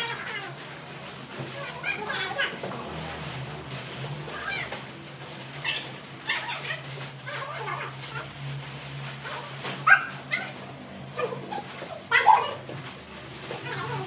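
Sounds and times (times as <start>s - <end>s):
monkey squeaking and crying: 5.6s - 8.2s.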